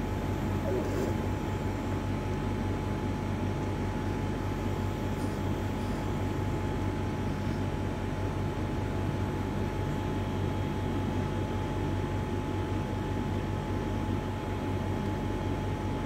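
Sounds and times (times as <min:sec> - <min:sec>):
machine hum: 0:00.0 - 0:10.7.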